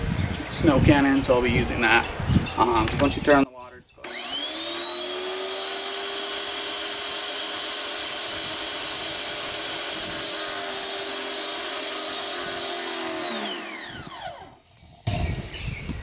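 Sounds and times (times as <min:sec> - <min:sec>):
pressure washer motor whining: 0:04.0 - 0:14.6.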